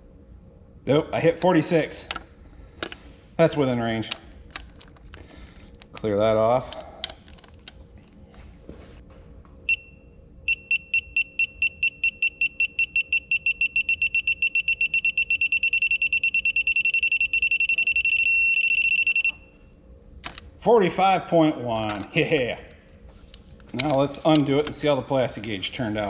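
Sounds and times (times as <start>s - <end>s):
torque adapter beeping: 10.5s - 19.5s.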